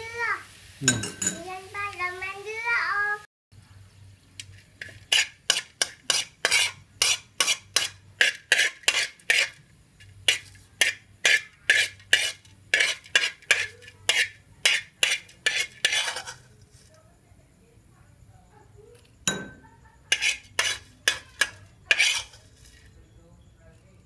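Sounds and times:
metal spoon scraping a wok: 4.3s - 17.0s, 19.3s - 23.0s.

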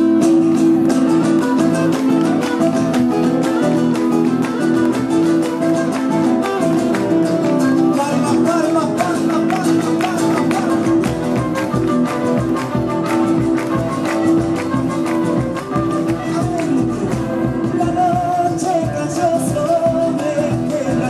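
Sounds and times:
acoustic guitars strumming: 0.0s - 21.0s
drum: 8.4s - 21.0s.

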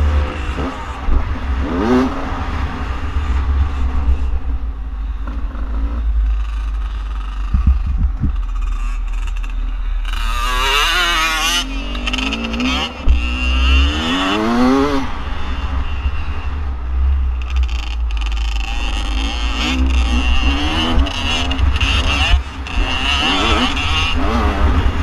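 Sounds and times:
heavy low rumble: 0.0s - 23.0s
dirt bike engine revving: 5.2s - 16.6s, 17.3s - 25.0s.

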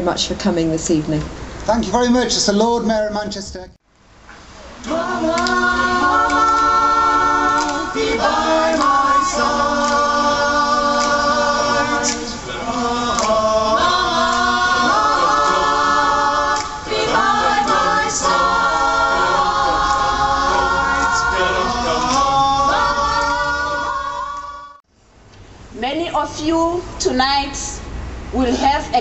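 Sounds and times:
choir singing a cappella: 4.8s - 24.8s.

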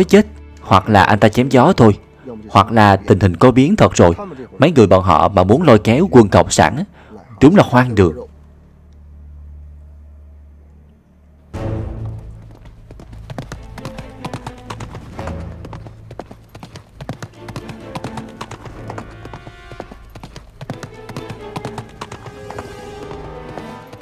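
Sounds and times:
background film music: 0.0s - 24.0s
horse hoofbeats galloping on dirt: 12.0s - 24.0s.

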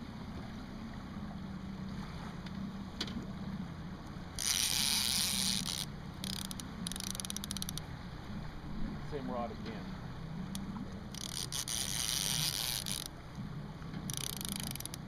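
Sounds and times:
ticking: 4.4s - 7.8s, 10.5s - 13.1s, 14.1s - 15.0s.

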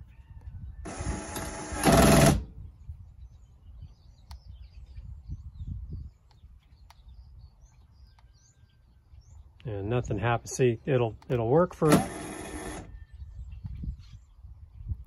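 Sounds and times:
electric jack motor running: 0.8s - 2.6s, 11.8s - 13.0s.

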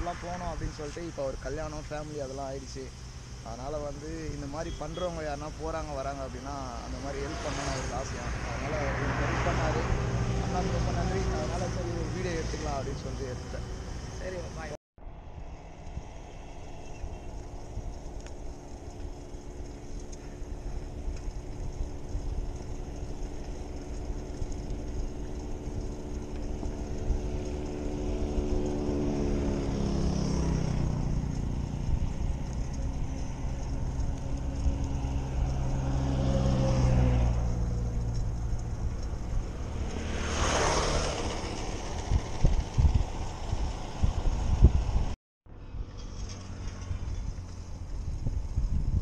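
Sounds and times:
tyres rolling on asphalt: 0.0s - 14.8s, 15.8s - 45.0s
vehicle engine hum passing: 0.0s - 49.0s
wind buffeting microphone: 15.3s - 45.2s, 46.9s - 49.0s.

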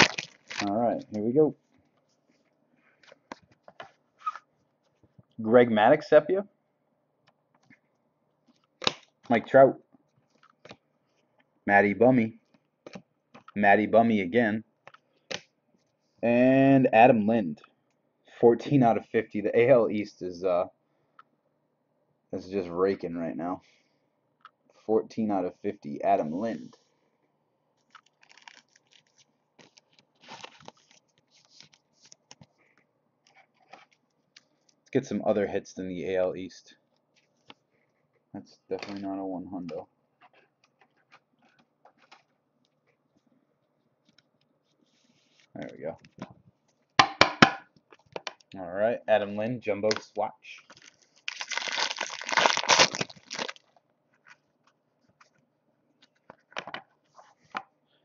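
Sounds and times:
foil wrapper crinkling and tearing: 0.0s - 0.8s, 27.9s - 31.8s, 50.7s - 53.8s.

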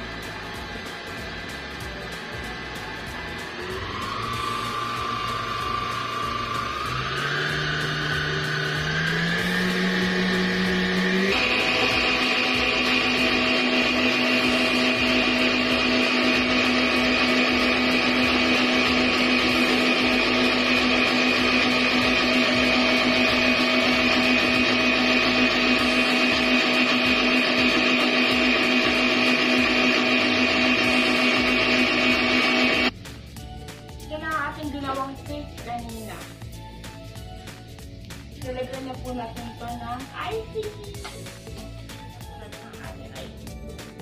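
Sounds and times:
stand mixer motor whine: 0.0s - 33.0s.

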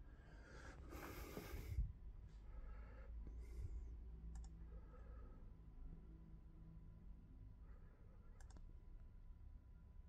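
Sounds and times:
faint low hum: 0.0s - 10.0s
computer mouse clicks: 4.3s - 4.6s, 8.4s - 8.7s.

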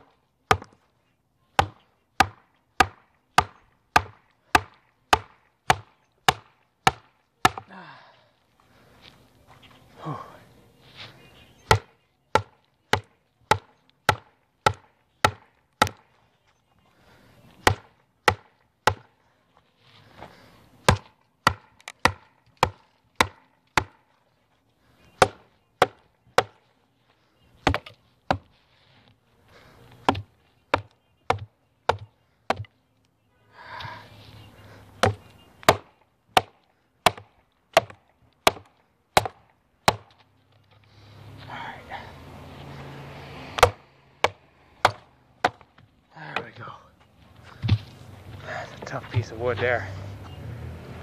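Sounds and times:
blade splitting log: 1.6s - 7.7s, 11.7s - 16.0s, 17.6s - 19.1s, 20.9s - 24.0s, 25.2s - 26.6s, 27.6s - 28.5s, 30.0s - 32.7s, 35.0s - 40.2s, 43.5s - 45.7s.

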